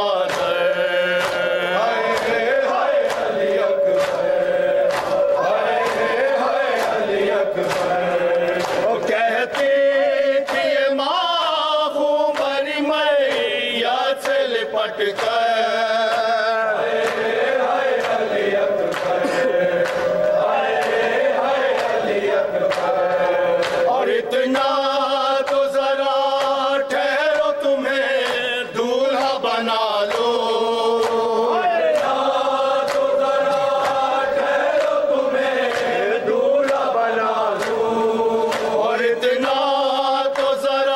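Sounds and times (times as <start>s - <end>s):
men chanting a lament: 0.0s - 40.9s
hands slapping chests: 4.9s - 8.9s, 18.9s - 21.1s, 23.6s - 23.9s, 38.5s - 38.8s.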